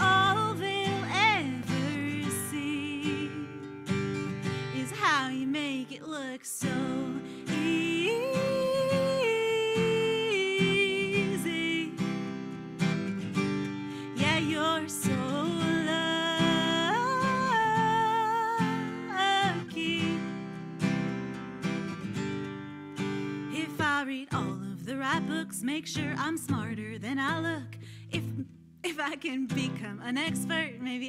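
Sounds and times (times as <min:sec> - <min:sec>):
strummed acoustic guitar: 0:00.0 - 0:28.7
woman singing long notes: 0:04.8 - 0:12.0.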